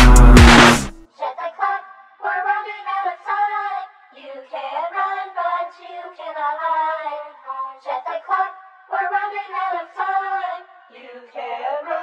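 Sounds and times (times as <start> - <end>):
person singing: 0.0 - 3.5.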